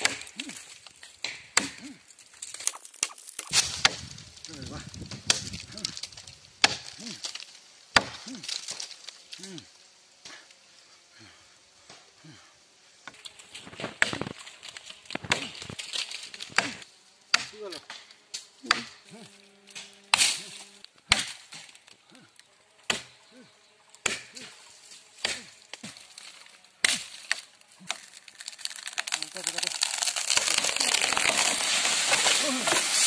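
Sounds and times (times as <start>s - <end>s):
machete chopping tree trunk: 0.0s - 4.2s, 5.0s - 8.9s, 13.7s - 14.3s, 15.1s - 19.0s, 19.6s - 21.8s, 22.8s - 23.2s, 24.0s - 24.5s, 25.2s - 33.0s.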